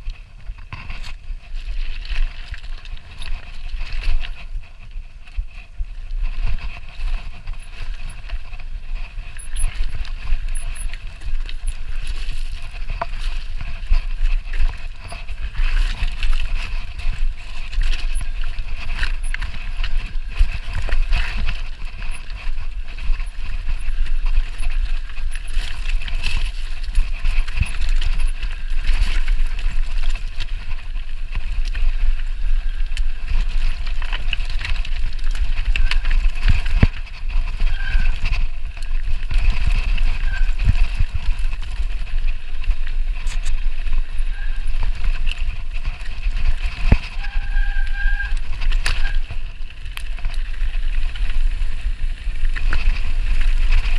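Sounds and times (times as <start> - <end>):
wind buffeting microphone: 0.0 - 53.9
tyres grinding over loose stones: 6.6 - 53.9.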